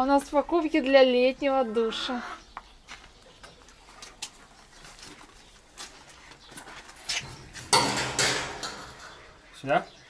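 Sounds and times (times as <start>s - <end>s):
metal rack rattling on steel wall: 7.4s - 9.3s.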